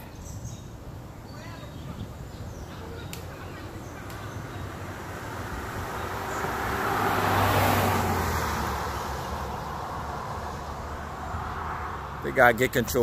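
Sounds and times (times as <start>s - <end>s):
car passing by: 4.3s - 13.0s.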